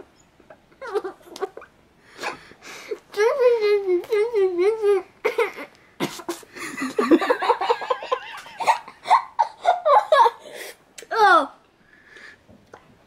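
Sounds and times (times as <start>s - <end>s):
boy laughing with full mouth: 5.2s - 10.7s.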